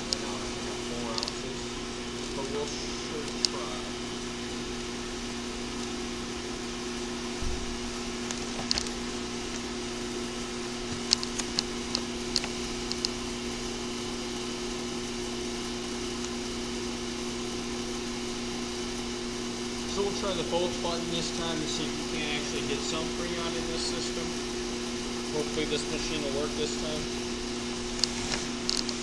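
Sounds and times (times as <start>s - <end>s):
machine humming: 0.0s - 29.0s.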